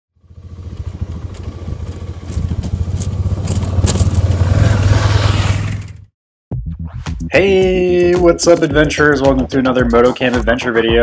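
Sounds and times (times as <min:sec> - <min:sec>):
gravel crunching under tyres: 0:00.2 - 0:06.0
motorcycle engine running: 0:00.2 - 0:06.1.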